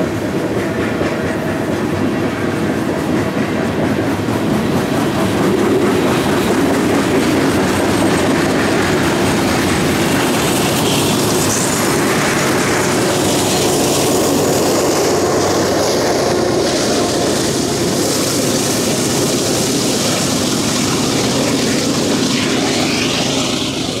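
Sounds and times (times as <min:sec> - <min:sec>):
diesel locomotive passing: 0:00.0 - 0:24.0
train wheels clickety-clack: 0:00.0 - 0:24.0.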